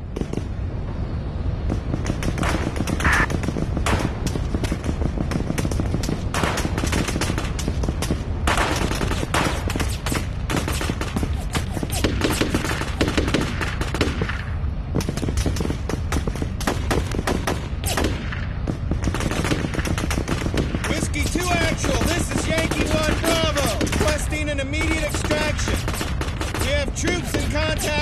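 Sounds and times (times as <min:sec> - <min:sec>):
automatic gunfire bursts: 0:19.0 - 0:28.0.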